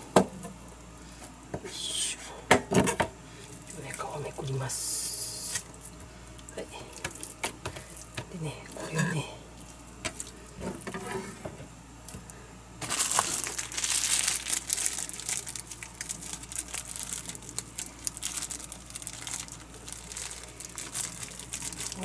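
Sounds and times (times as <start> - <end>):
plastic bag crinkling: 12.8 - 22.0.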